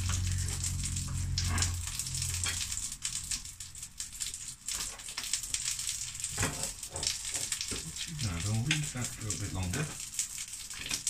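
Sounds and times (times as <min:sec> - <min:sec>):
low hum: 0:00.0 - 0:03.8
meat sizzling in a frying pan: 0:00.0 - 0:11.0.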